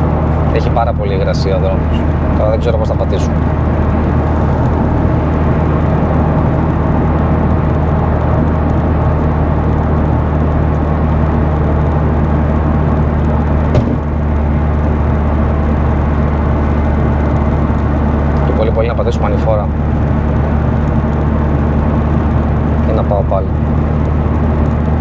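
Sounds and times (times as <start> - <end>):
car engine droning: 0.0 - 25.0
tyre and road noise: 0.0 - 25.0.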